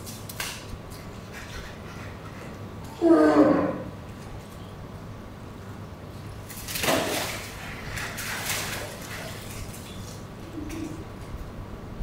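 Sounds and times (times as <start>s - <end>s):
water splashing: 6.4s - 11.1s.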